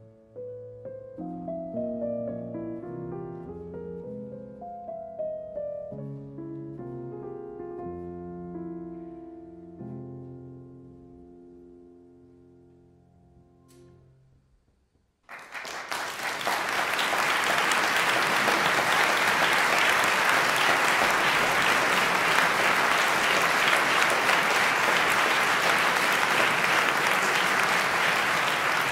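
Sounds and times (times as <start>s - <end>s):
audience applause: 15.3s - 28.9s.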